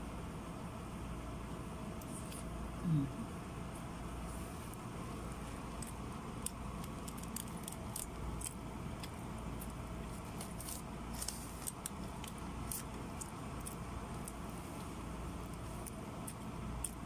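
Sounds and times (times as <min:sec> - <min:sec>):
steady low hum: 0:00.0 - 0:17.0
plastic bag and foil crinkling: 0:05.7 - 0:08.6.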